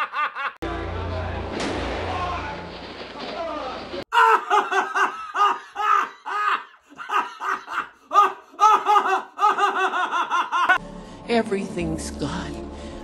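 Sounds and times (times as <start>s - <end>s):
man laughing in high whoops: 4.1s - 10.8s.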